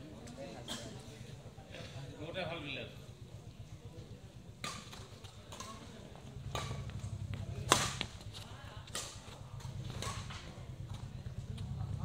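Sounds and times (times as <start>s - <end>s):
rackets hitting shuttlecock: 4.5s - 11.1s.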